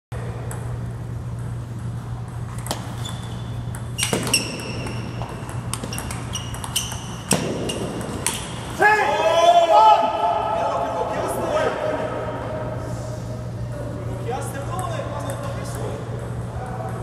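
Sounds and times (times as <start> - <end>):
steady low hum: 0.1 - 17.0
table tennis ball pings: 2.3 - 8.5.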